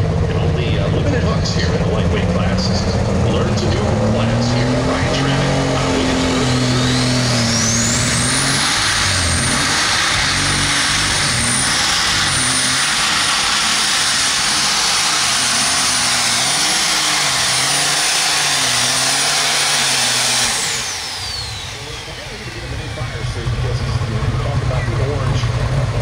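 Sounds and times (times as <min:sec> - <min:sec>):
high turbo whine: 0:00.0 - 0:26.0
tractor engine running hard: 0:00.0 - 0:26.0.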